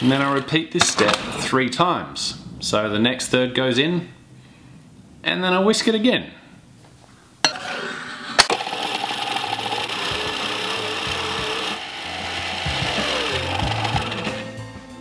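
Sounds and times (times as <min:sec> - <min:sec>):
electric mixer whirring: 0:08.4 - 0:14.6.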